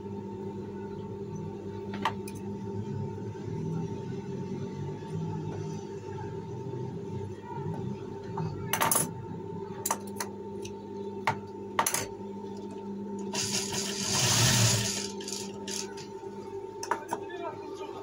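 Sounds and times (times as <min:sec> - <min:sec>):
sewing machine motor humming: 0:13.3 - 0:16.1.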